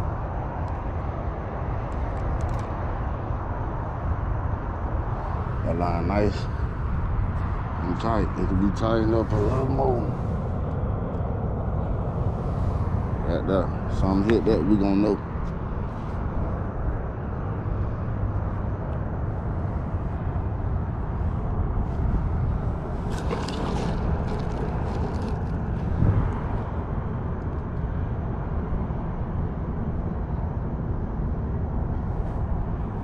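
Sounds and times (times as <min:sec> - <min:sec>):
wind buffeting microphone: 0:00.0 - 0:33.0
plastic packets rustling: 0:23.1 - 0:25.6.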